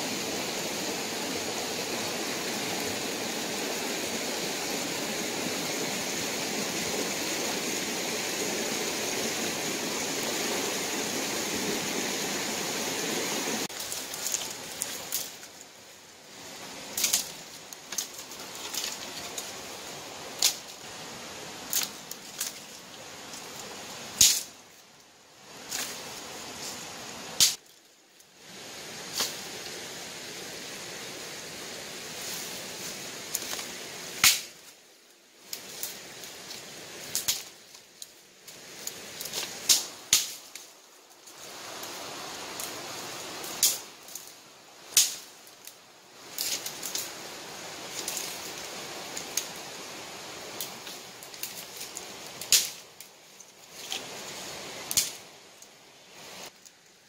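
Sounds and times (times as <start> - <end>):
dry leaves crunching and rustling: 13.7 - 15.6
dry twigs snapping: 13.7 - 15.6, 16.9 - 19.5, 21.7 - 22.6, 37.1 - 38.1, 50.6 - 54.1, 54.9 - 55.2.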